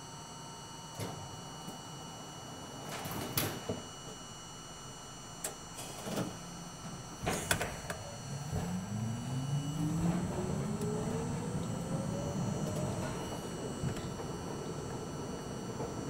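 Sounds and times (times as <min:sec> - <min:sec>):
traction motor whine: 0:03.9 - 0:16.0
subway car clunks: 0:05.4 - 0:16.0.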